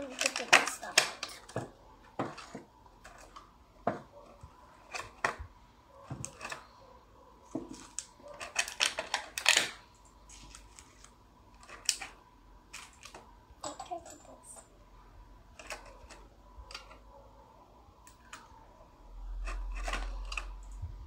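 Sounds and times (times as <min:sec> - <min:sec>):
small pieces clicking on table: 0:10.6 - 0:13.2.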